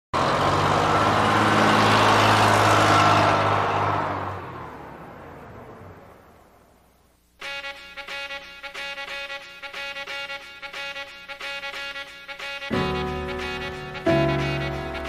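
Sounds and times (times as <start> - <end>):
bus engine running: 0.2 - 6.7.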